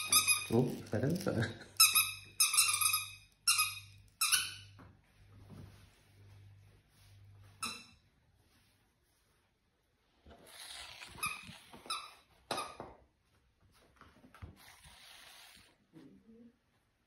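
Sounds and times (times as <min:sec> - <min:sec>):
squeaky toy squeaks: 0:00.0 - 0:00.8, 0:01.8 - 0:04.7, 0:07.6 - 0:08.0, 0:11.0 - 0:12.8
soft rustling: 0:05.0 - 0:11.9.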